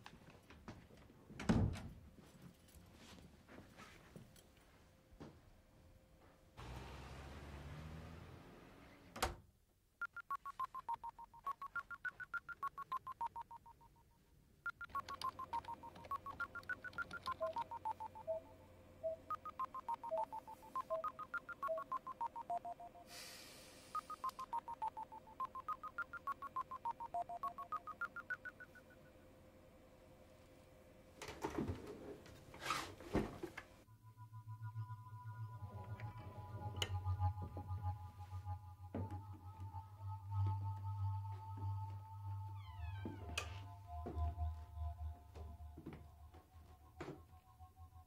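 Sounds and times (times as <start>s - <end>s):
touch-tone dialing beeps: 10.0s - 14.0s, 14.7s - 23.1s, 23.9s - 29.0s
faint steady tone and hum: 10.0s - 31.4s, 33.8s - 48.0s.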